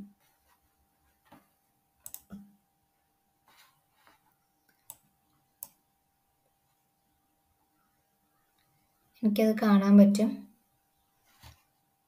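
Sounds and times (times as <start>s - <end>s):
computer mouse clicks: 2.0s - 2.5s, 4.6s - 5.8s.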